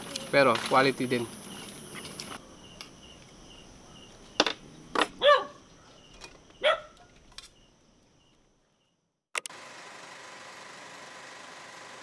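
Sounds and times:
insects chirping: 0.0s - 9.2s
sharp clicks: 9.4s - 9.6s.

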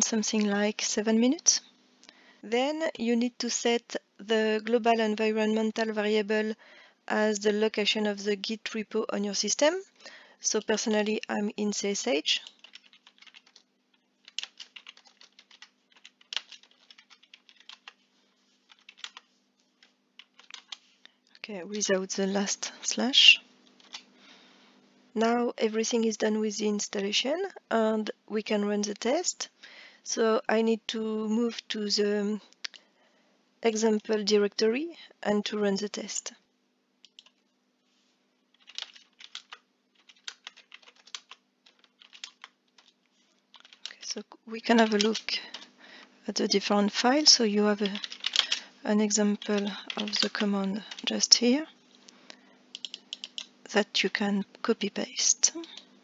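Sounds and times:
computer keyboard typing: 12.4s - 13.6s, 14.2s - 18.0s, 18.7s - 20.8s, 23.8s - 24.0s, 37.0s - 37.4s, 38.5s - 44.0s, 44.7s - 45.7s, 47.7s - 51.3s, 52.7s - 53.5s.

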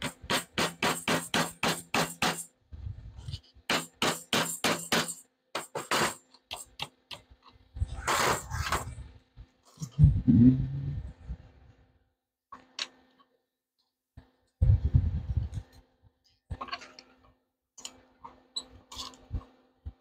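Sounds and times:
hammer driving nails into wood: 0.0s - 2.5s, 3.7s - 7.3s.

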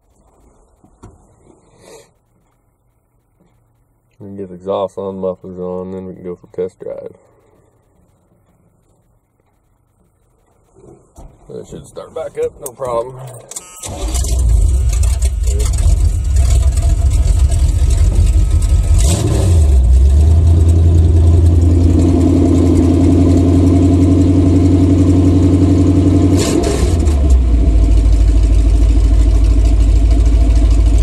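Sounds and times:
loud engine revving and idling: 14.2s - 31.0s.

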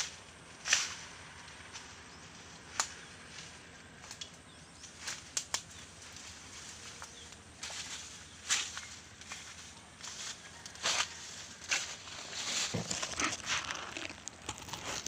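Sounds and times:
brush and weeds rustling: 0.0s - 15.0s
twigs snapping underfoot: 2.7s - 6.4s, 7.0s - 15.0s.

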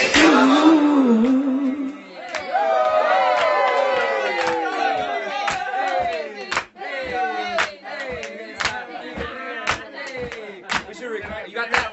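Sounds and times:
group of people shouting and whooping: 2.2s - 6.4s.

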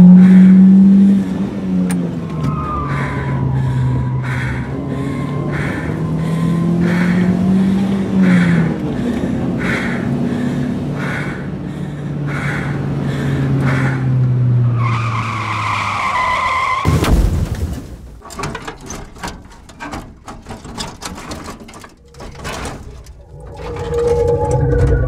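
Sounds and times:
car engine running: 0.0s - 16.4s, 18.4s - 25.0s
tyres screeching: 0.0s - 17.0s, 18.2s - 25.0s
car crash: 14.6s - 25.0s
crackling and clicking debris: 16.9s - 25.0s.

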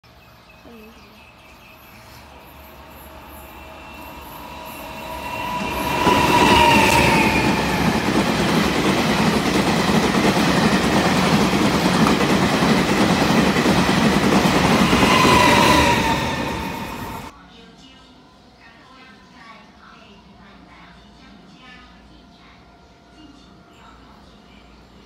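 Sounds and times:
train rumble and wheel clatter: 1.8s - 17.4s
locomotive whine dropping in pitch: 2.3s - 8.3s.

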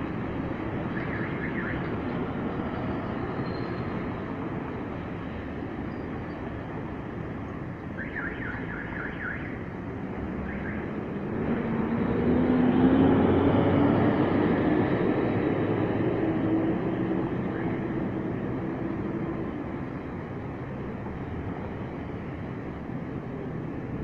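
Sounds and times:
city traffic: 0.0s - 24.0s
vehicle engines passing: 0.0s - 24.0s.

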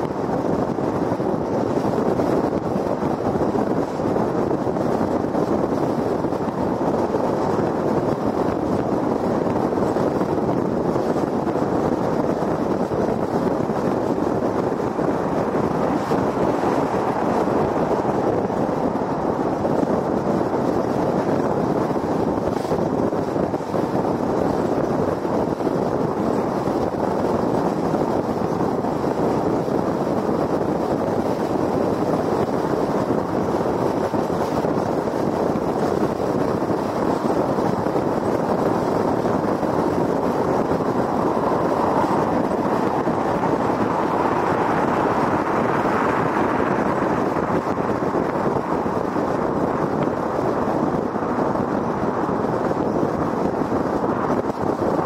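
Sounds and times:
rushing wind: 0.0s - 55.0s
tyres rolling on pavement: 36.8s - 52.8s.

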